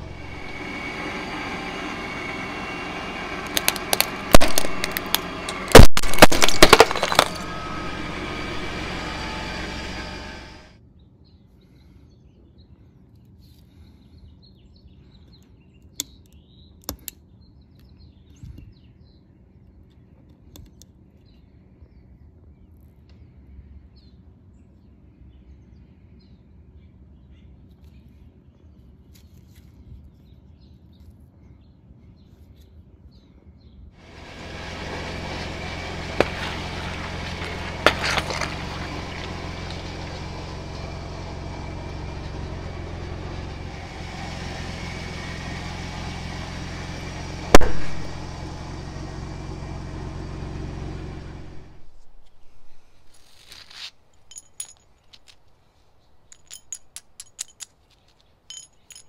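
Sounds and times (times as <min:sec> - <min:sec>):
tyres rumbling over concrete: 0:00.0 - 0:10.7, 0:34.0 - 0:52.8
vehicle engine low hum: 0:00.0 - 0:12.0, 0:33.6 - 0:59.0
sharp cracks of objects crushed: 0:03.4 - 0:08.8, 0:34.1 - 0:40.7, 0:47.5 - 0:48.4.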